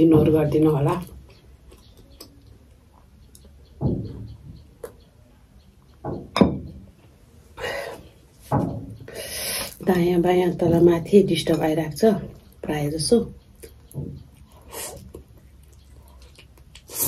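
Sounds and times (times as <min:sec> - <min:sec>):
glass clinking: 0:06.3 - 0:06.7.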